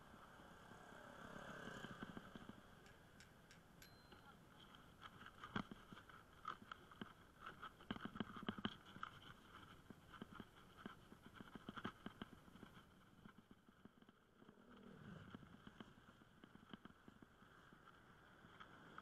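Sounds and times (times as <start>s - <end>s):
motorbike passing: 0.1s - 2.8s.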